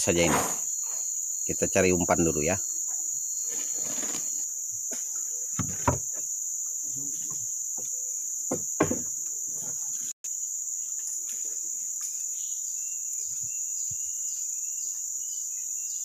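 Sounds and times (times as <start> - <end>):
wooden boat knocks: 5.6 - 6.2, 8.5 - 9.2.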